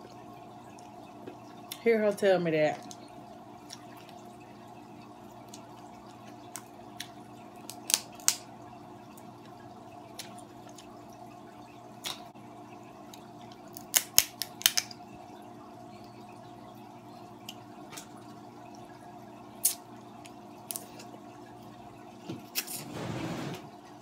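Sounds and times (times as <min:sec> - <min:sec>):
crab shell clicking and snapping: 0:06.5 - 0:08.5, 0:13.1 - 0:15.0.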